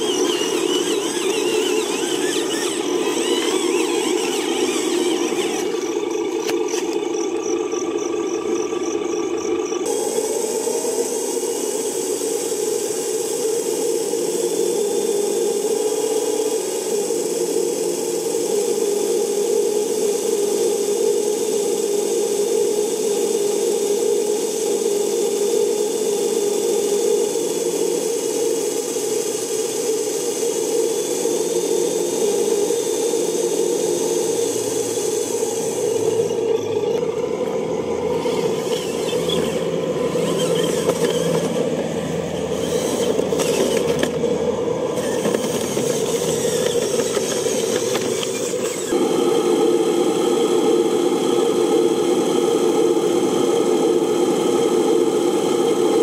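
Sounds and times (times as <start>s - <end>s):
hydraulic pump running: 0.0s - 56.0s.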